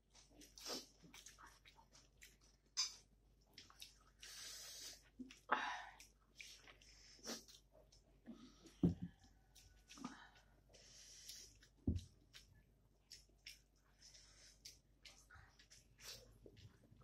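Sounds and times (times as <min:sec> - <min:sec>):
food squishing in hand: 0:00.0 - 0:08.5, 0:09.1 - 0:17.0
wet chewing: 0:00.1 - 0:17.0
lip smacks and mouth clicks: 0:00.4 - 0:04.4, 0:05.0 - 0:08.1, 0:11.2 - 0:16.9.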